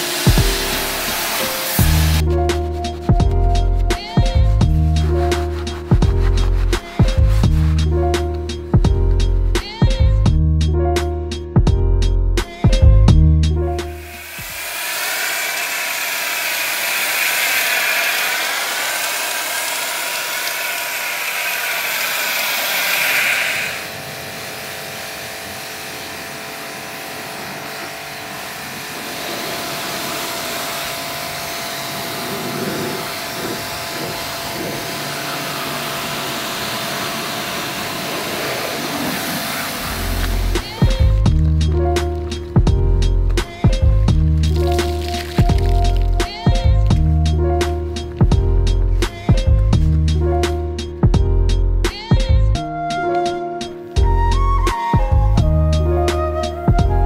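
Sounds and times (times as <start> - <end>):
water spray hissing: 0.0 - 9.7, 13.8 - 26.1, 28.6 - 49.5
pressure washer motor humming: 0.0 - 10.1, 12.6 - 51.0.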